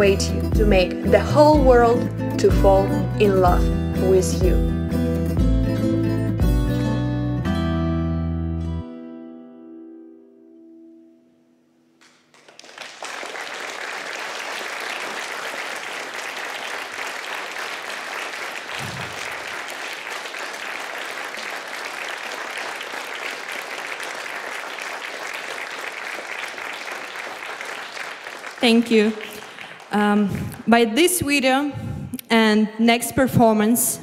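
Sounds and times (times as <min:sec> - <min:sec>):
audience applauding: 0:12.0 - 0:30.2.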